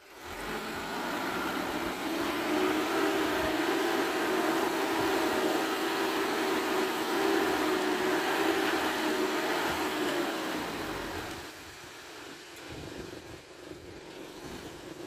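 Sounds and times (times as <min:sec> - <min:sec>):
dump truck engine running: 0:00.0 - 0:11.6.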